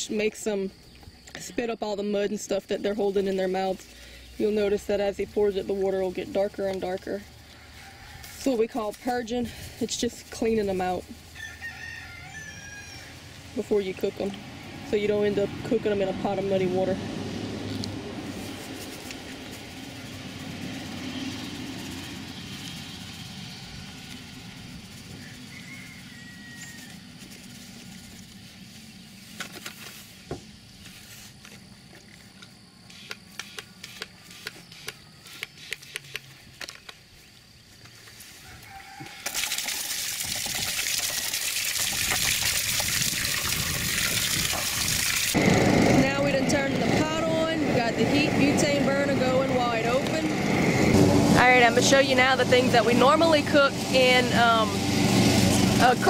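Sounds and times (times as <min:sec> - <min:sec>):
hose nozzle spraying water: 0:39.2 - 0:45.4.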